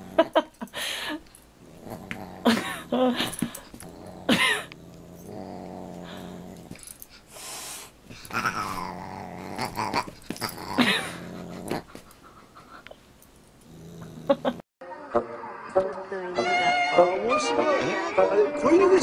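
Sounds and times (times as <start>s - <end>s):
dog growling: 0.0s - 0.5s, 1.6s - 7.0s, 8.1s - 12.3s, 13.6s - 14.6s.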